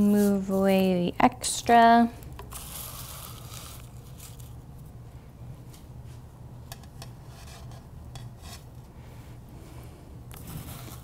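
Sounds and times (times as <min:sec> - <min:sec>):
low room hum: 0:00.0 - 0:11.0.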